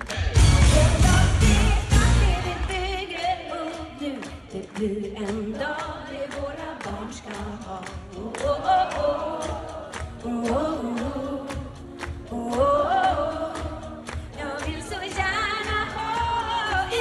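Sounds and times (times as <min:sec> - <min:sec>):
band playing: 0:00.0 - 0:03.1
woman singing into microphone: 0:00.4 - 0:17.0.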